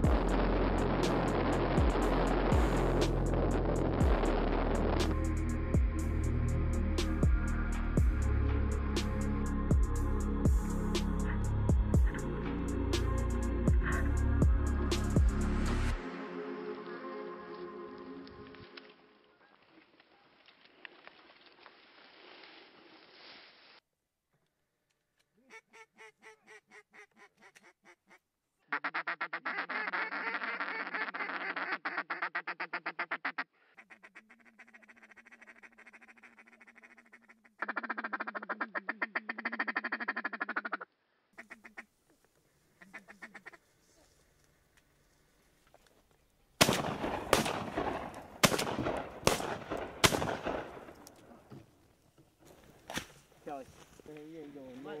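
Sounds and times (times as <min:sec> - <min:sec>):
duck call rapid quacking: 0:25.5 - 0:41.9, 0:42.8 - 0:43.6
loud shotgun shots: 0:46.6 - 0:51.0.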